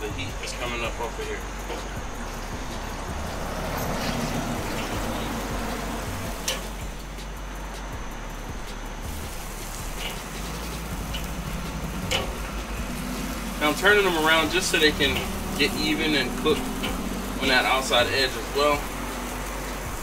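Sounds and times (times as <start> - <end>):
chicken sizzling on a grill: 0.0 - 20.0
metal tongs clicking on grate: 6.4 - 6.8, 9.9 - 12.7, 14.6 - 17.2.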